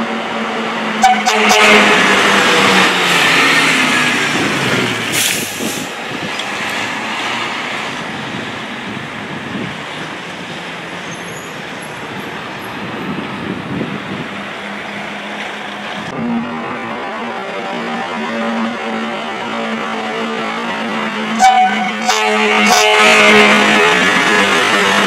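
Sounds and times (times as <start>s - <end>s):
fire engine driving past: 0.0s - 25.0s
street traffic: 0.0s - 25.0s
short hiss: 5.2s - 6.0s.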